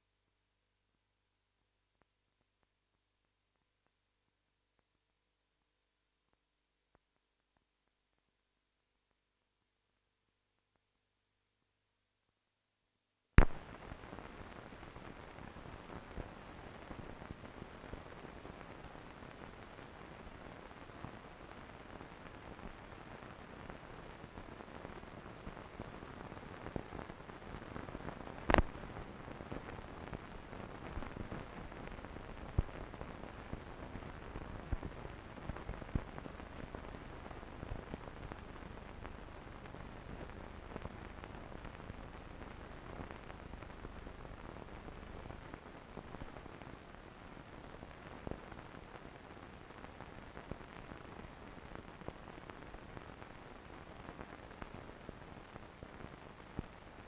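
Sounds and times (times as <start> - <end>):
clicks and pops: 13.4 - 13.7, 28.5 - 28.8
sharp crack: 13.4 - 13.8
film surface hiss: 13.4 - 57.0.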